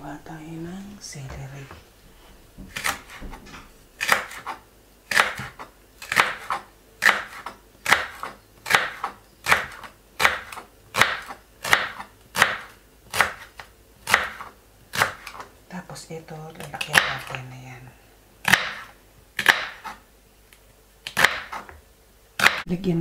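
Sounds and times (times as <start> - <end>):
knife slicing celery on board: 2.7 - 15.5, 18.4 - 20.0, 21.0 - 21.8, 22.4 - 22.6.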